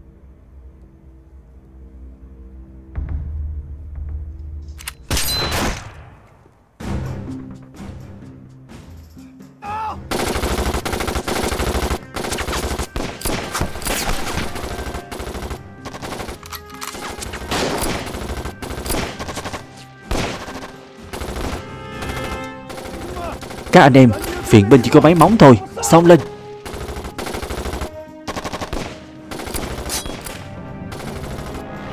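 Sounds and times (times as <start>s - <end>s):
rifle and machine-gun fire: 10.1s - 24.3s, 26.6s - 31.8s.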